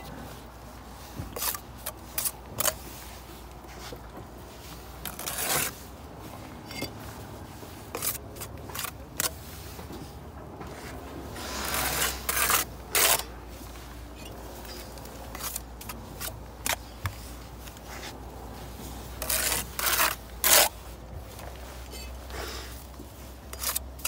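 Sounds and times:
trowel scraping wet mortar: 1.3 - 3.2, 5.0 - 5.9, 7.8 - 9.7, 10.7 - 13.4, 14.2 - 18.2, 19.1 - 20.8, 21.8 - 24.0.

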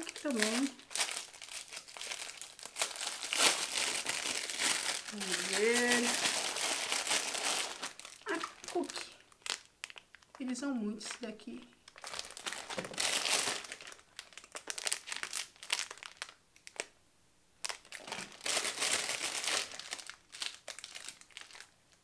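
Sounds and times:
plastic wrappers crinkling: 0.0 - 16.9, 17.6 - 22.0.

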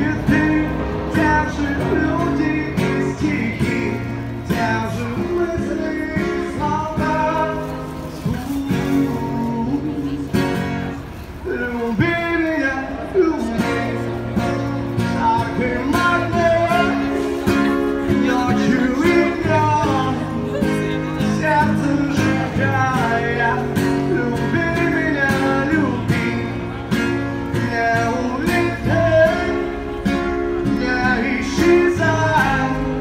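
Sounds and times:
man singing: 0.0 - 10.6, 11.4 - 33.0
acoustic guitar strumming: 0.0 - 33.0.

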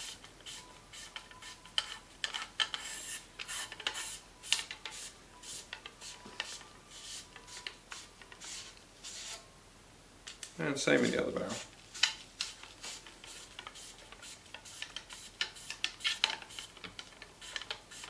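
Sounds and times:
brush scrubbing gun barrel: 10.9 - 16.8, 17.4 - 18.0.

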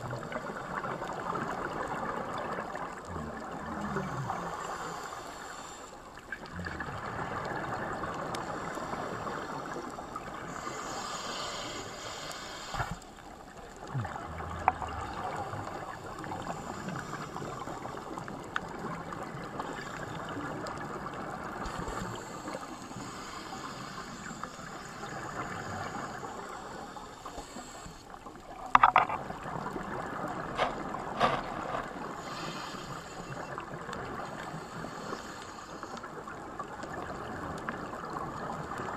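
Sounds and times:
underwater rushing: 0.0 - 38.9
sharp clicks and knocks: 28.7 - 29.2, 30.6 - 31.9.

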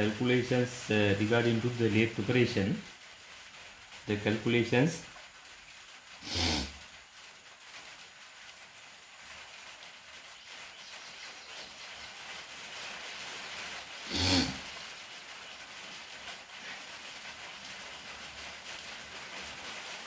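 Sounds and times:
short voice sound: 6.2 - 6.7, 14.1 - 14.6.

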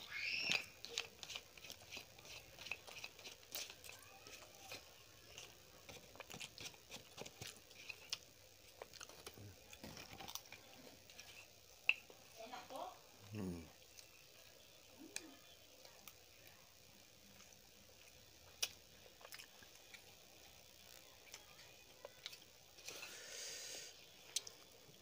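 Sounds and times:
close chewing with mouth clicks: 0.1 - 12.2, 15.0 - 23.1, 24.0 - 25.0.

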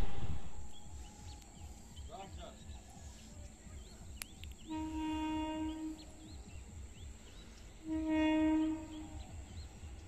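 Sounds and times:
train horn blast: 4.7 - 6.3, 7.8 - 9.4.

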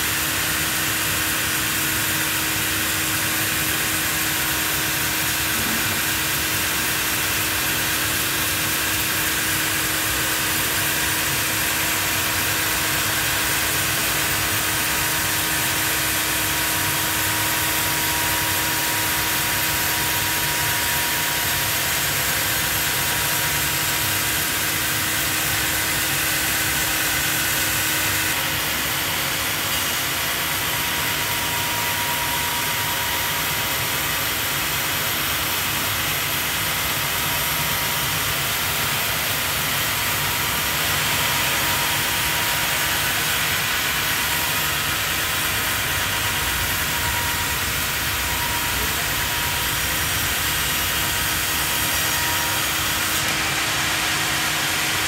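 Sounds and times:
band saw cutting log: 0.3 - 55.0
steady hum: 38.1 - 55.0.

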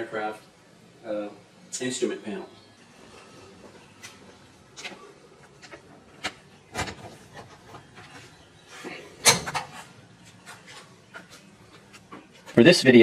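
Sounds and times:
door clattering open: 6.7 - 7.6, 9.2 - 9.8.

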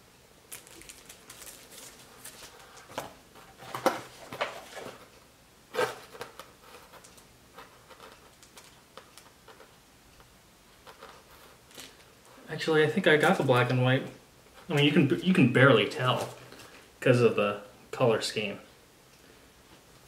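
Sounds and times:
paper rustling and crinkling: 0.5 - 5.1.

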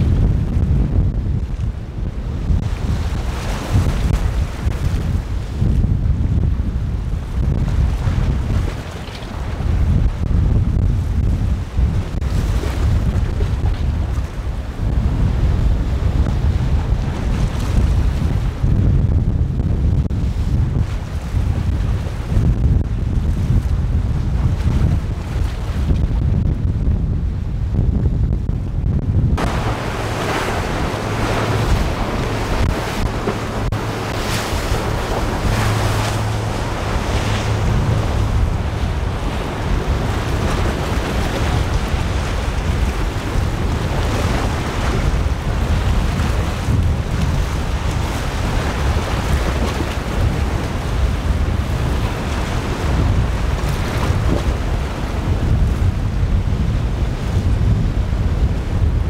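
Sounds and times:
breaking waves: 0.0 - 6.2, 29.4 - 59.0
wind on microphone: 0.0 - 59.0
outboard engines running: 28.6 - 59.0.

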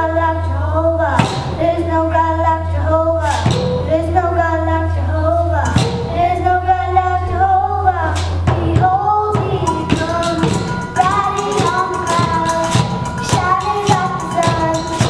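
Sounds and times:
girl singing into a microphone: 0.0 - 15.0
beat on steel pots and pans: 1.2 - 1.6, 3.3 - 3.9, 8.5 - 15.0.

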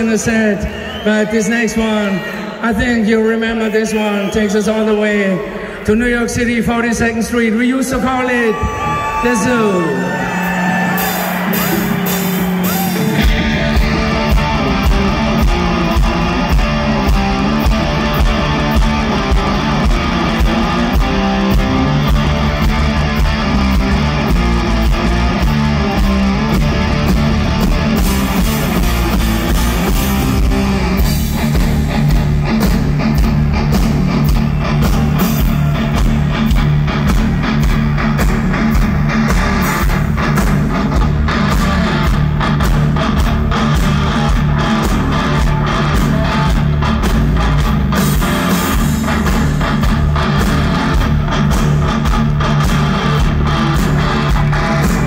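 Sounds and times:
live hard rock band: 8.0 - 55.0.

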